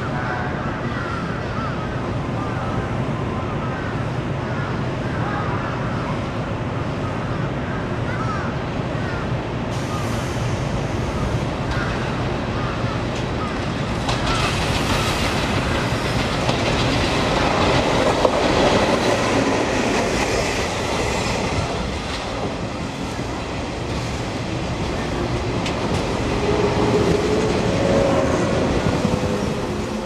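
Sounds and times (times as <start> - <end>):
train running past: 0.0 - 30.0
train wheels clattering over rail joints: 13.2 - 20.6.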